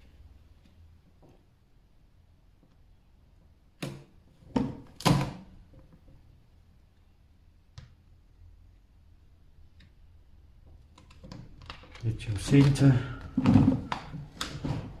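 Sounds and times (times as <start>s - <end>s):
vinyl sheet handling noise: 11.6s - 15.0s.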